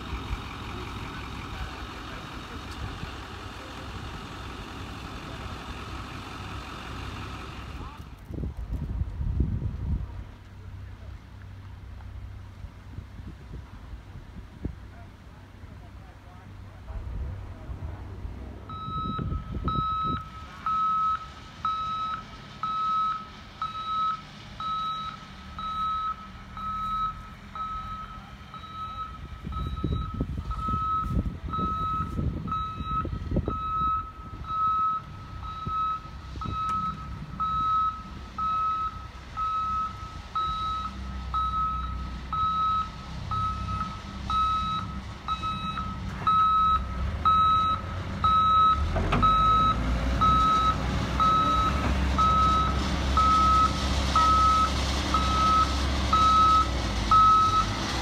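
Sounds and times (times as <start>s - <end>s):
diesel engine rumble: 0.0s - 58.0s
reverse alarm beeping: 18.7s - 57.7s.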